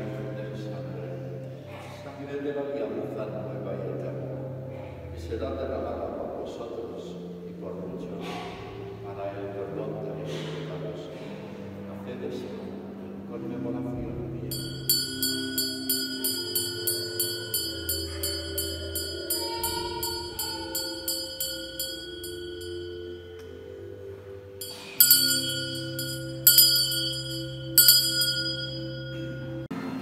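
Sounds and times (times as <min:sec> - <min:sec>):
small altar bells ringing: 0:14.5 - 0:29.7.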